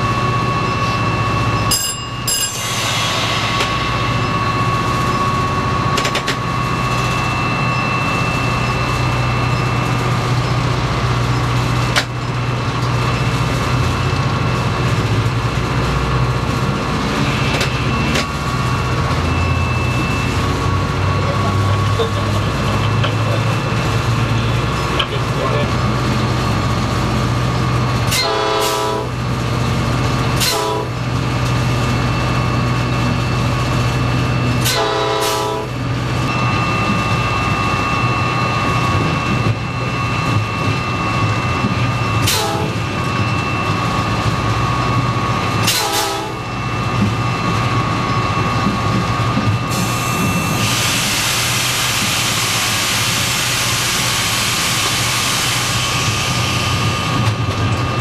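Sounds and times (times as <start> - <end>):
steady tone: 0.0 - 10.0, 15.4 - 21.3
locomotive engine drone: 0.0 - 58.0.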